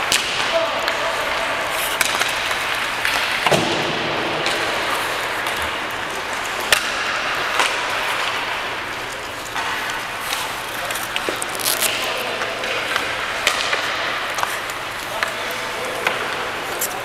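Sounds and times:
pucks and sticks clacking: 0.0 - 17.0
steady rink hiss: 0.4 - 17.0.

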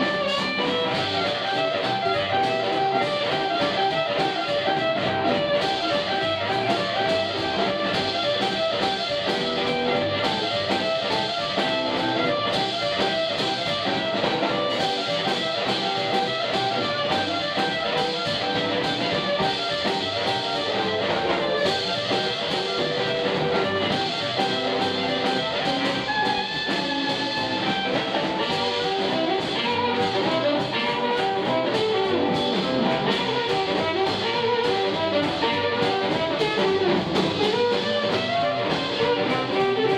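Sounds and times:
blues harmonica: 0.0 - 39.9
double bass: 0.0 - 39.9
drums: 0.0 - 39.9
electric guitar: 0.0 - 39.9.

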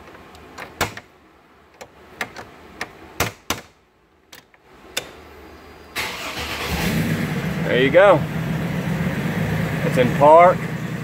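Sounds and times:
car engine starting and running: 6.0 - 11.0.

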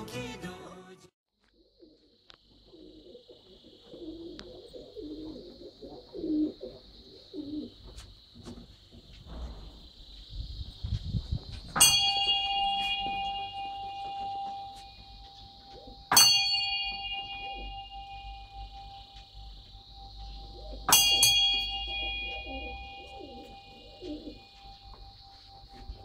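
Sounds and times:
dove cooing: 1.6 - 8.6, 12.7 - 16.2, 16.9 - 26.0
prayer wheel bell ringing: 11.8 - 26.0.

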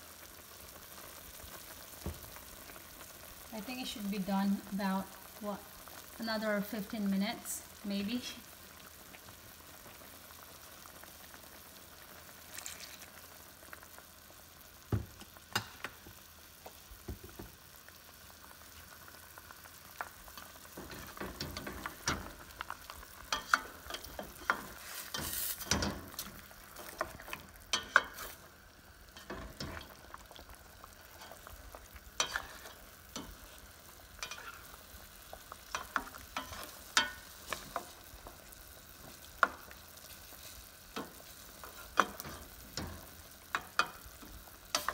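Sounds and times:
meat simmering and sizzling in a pan: 0.0 - 44.9
spoon knocking and scraping a pan: 14.9 - 17.6, 20.0 - 22.6, 23.3 - 28.5, 29.1 - 30.5, 32.2 - 33.6, 34.2 - 44.9.

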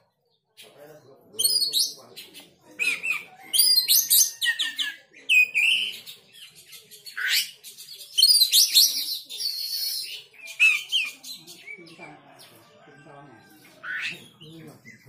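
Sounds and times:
bird singing whistled phrases: 1.4 - 2.0, 2.8 - 6.1, 7.2 - 11.2.

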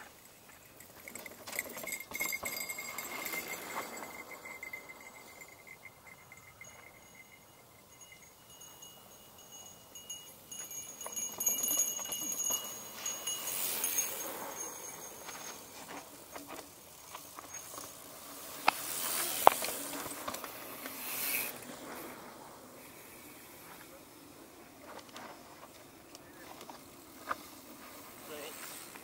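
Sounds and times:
bicycle freehub ticking: 0.0 - 15.5.

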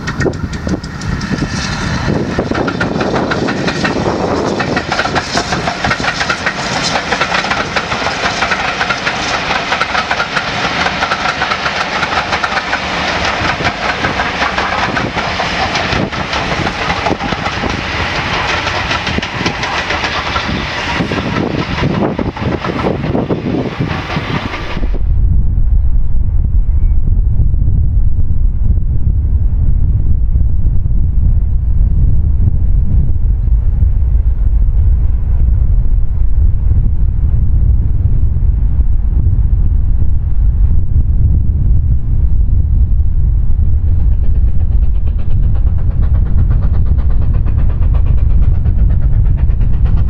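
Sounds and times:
train wheels clattering on rails: 0.0 - 25.0, 43.8 - 50.0
wind buffeting microphone: 0.0 - 50.0.

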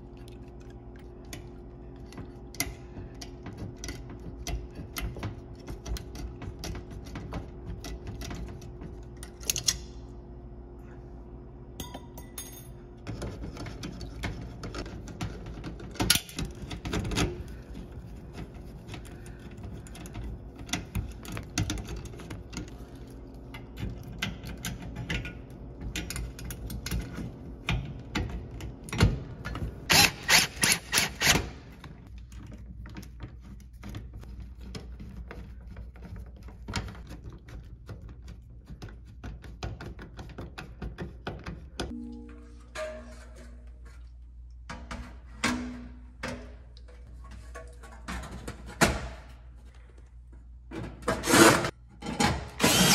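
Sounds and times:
screwdriver turning screws: 29.9 - 31.5.

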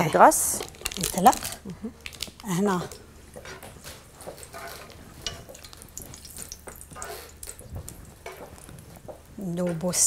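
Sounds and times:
wooden spatula scraping a pan: 3.4 - 5.6, 7.0 - 7.4
faint oil sizzle: 4.3 - 9.5.

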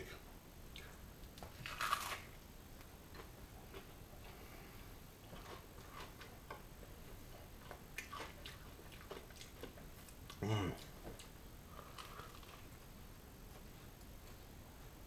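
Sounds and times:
chewing with mouth smacks: 2.8 - 4.5, 5.2 - 12.7
biting into a burger: 7.6 - 12.7.

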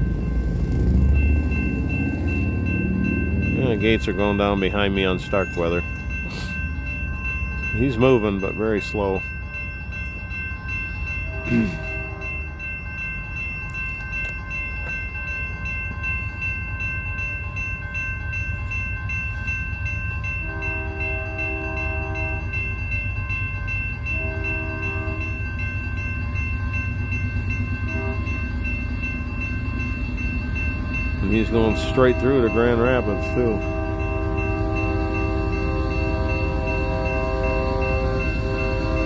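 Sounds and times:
crossing bells ringing: 0.0 - 39.0
locomotive rumble: 0.0 - 39.0
train horn blasts: 11.2 - 12.4, 20.4 - 22.6, 24.1 - 25.3, 27.8 - 28.4, 31.3 - 39.0.

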